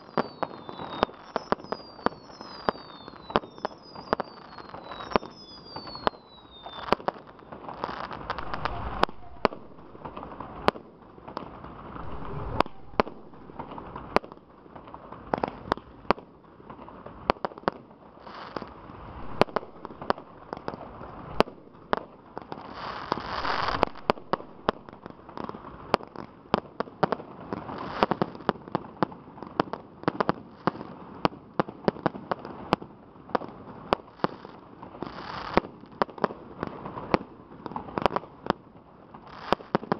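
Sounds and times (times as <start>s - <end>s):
fireworks shells bursting: 22.6s - 25.8s.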